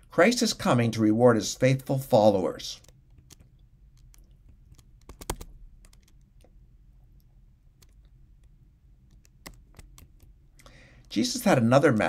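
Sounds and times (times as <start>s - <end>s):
low room hum: 0.0s - 12.0s
small clicks: 2.8s - 6.6s, 7.2s - 11.2s.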